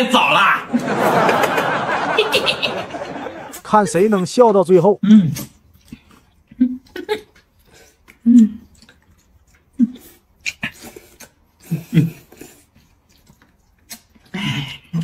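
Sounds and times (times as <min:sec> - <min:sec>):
people slurping noodles: 0:05.1 - 0:15.0
chewing: 0:05.3 - 0:15.0.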